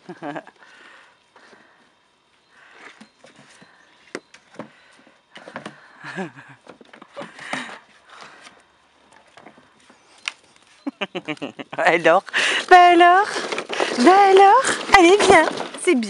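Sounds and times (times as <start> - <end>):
paws knocking and scraping plastic: 13.2 - 16.0.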